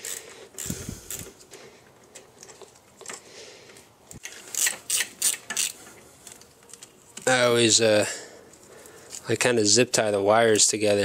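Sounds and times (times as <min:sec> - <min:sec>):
wrench ratchet clicks: 0:00.0 - 0:01.3, 0:04.2 - 0:05.8
wrench metallic clicks: 0:04.2 - 0:05.8.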